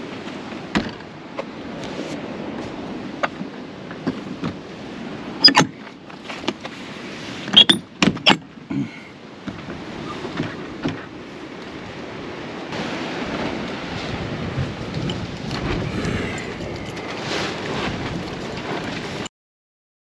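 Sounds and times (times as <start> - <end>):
wind noise on microphone: 11.8 - 19.3.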